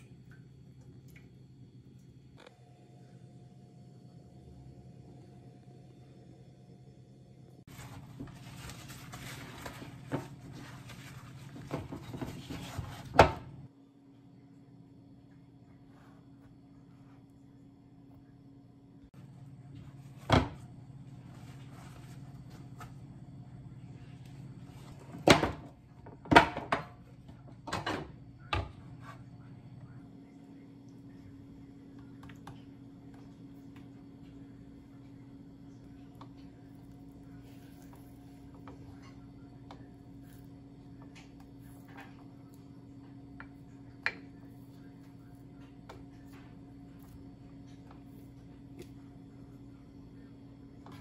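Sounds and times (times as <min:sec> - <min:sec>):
cloth rustling and rubbing: 0:07.7 - 0:13.1.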